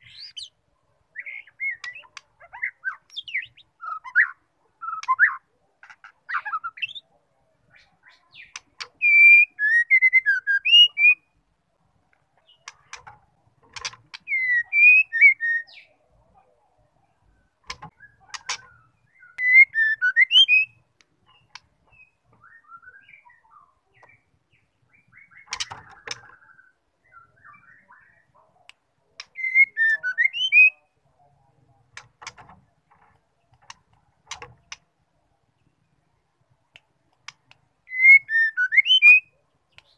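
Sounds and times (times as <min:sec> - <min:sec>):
bird sharp dry ticks: 0:08.4 - 0:09.0, 0:21.0 - 0:21.8, 0:25.4 - 0:26.4, 0:31.9 - 0:34.9, 0:36.7 - 0:37.7
bird whistled calls: 0:14.3 - 0:15.9, 0:29.4 - 0:30.8, 0:37.9 - 0:39.3.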